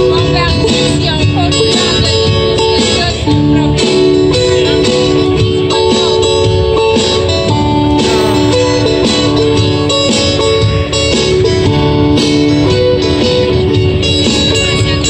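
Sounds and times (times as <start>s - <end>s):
acoustic guitars strumming: 5.5s - 13.6s.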